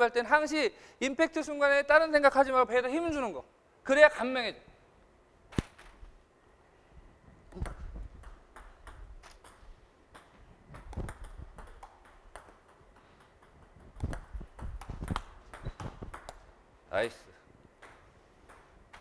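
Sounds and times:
table tennis ball clicking: 0:07.5 - 0:16.5.

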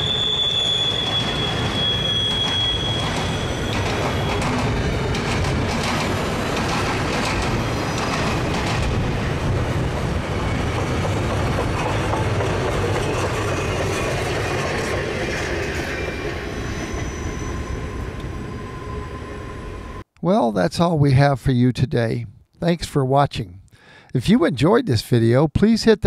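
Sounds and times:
faint wheel squeal: 0:00.0 - 0:04.6, 0:15.3 - 0:19.5
freight train passing: 0:00.0 - 0:20.0
wheels clattering over rails: 0:01.0 - 0:16.3.

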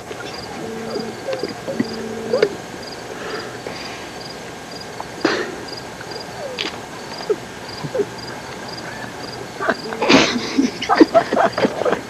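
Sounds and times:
faint clicks: 0:06.0 - 0:07.4.

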